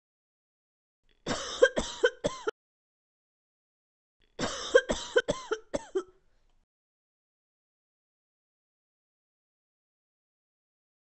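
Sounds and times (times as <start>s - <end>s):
person coughing: 1.3s - 2.5s, 4.4s - 6.2s.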